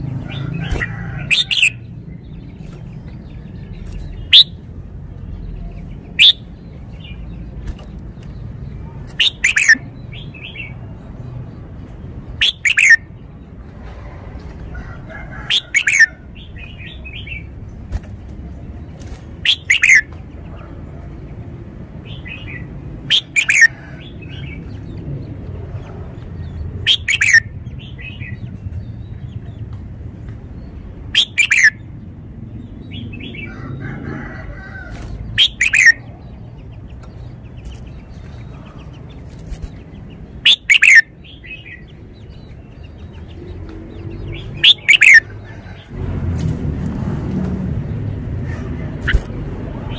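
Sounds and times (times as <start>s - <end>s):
bird singing downward phrases: 0.0s - 13.4s, 15.4s - 17.7s, 19.4s - 20.2s, 22.1s - 25.6s, 26.3s - 29.5s, 30.5s - 34.4s, 35.2s - 45.8s
soft bird twittering: 0.7s - 10.9s, 12.3s - 13.1s, 18.9s - 20.2s, 22.1s - 23.7s, 26.4s - 29.6s, 30.5s - 31.9s, 34.8s - 45.8s.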